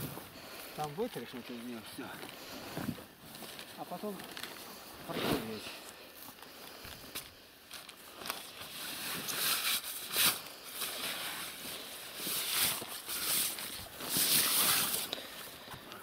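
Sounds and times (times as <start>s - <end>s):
newspaper rubbing on rubber: 12.2s - 15.1s.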